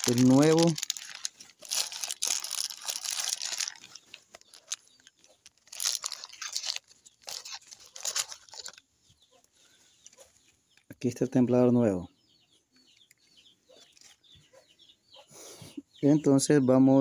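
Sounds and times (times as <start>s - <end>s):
plastic bag crinkling and tearing: 0.0s - 8.8s.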